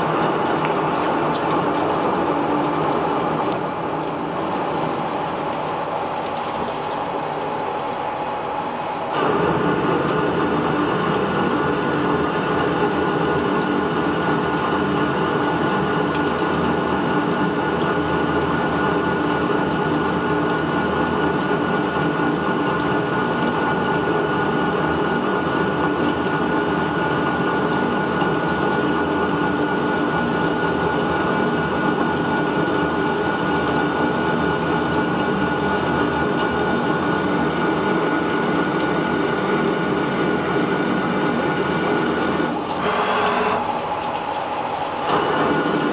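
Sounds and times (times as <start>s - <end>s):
lathe spindle whine: 7.8s - 45.9s
tool cutting metal: 42.7s - 43.7s
coolant spray hiss: 42.7s - 43.9s.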